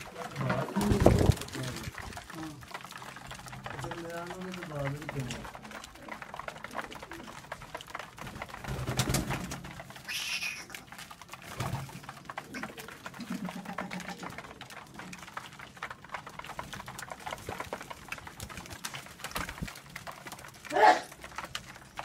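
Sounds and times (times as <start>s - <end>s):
beaks pecking grain: 0.0s - 22.0s
pigeons cooing: 5.1s - 15.2s.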